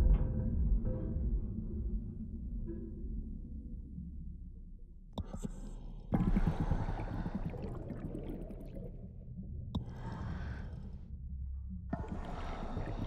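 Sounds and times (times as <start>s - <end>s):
bubbles gurgling underwater: 6.2s - 9.0s.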